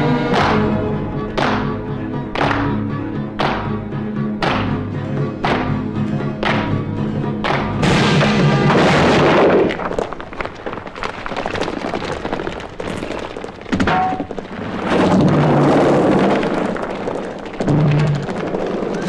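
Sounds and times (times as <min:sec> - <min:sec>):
thuds: 0:07.4 - 0:19.0.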